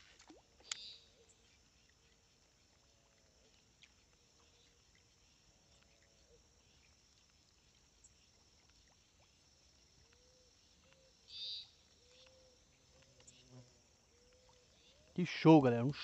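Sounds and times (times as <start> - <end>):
faint arching calls: 10.0 - 15.2.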